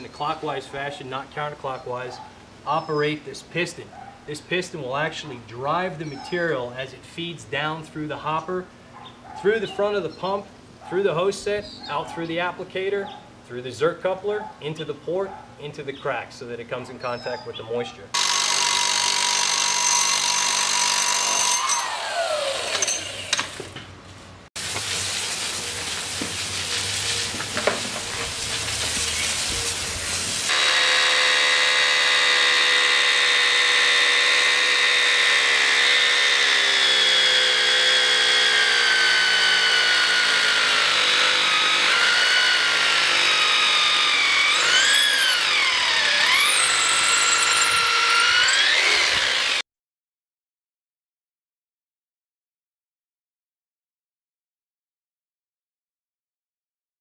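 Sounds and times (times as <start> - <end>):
drill motor whine: 18.2 - 23.6, 30.5 - 49.6
electric hammer running: 18.2 - 23.7, 25.8 - 49.6.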